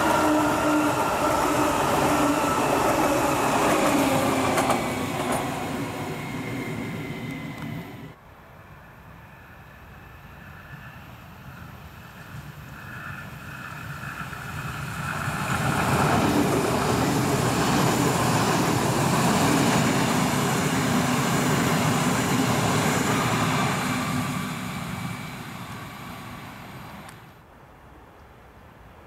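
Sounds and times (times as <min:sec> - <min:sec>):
electric train passing at speed: 0:00.0 - 0:27.4.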